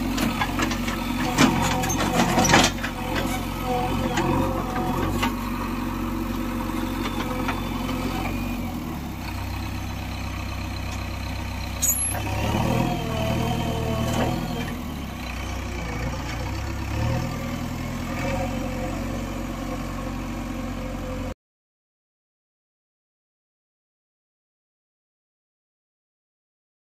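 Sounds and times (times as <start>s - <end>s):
diesel engine running: 0.0s - 21.4s.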